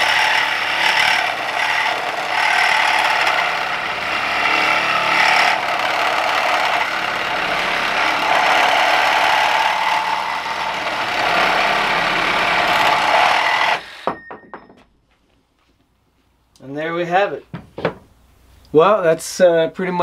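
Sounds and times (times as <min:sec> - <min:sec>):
reciprocating saw cutting steel: 0:00.0 - 0:14.1.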